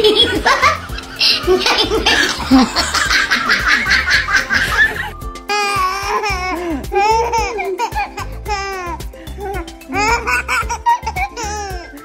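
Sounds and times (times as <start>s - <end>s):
breathy laughs: 0.0s - 5.1s
baby laughing in high squeals: 0.0s - 12.0s.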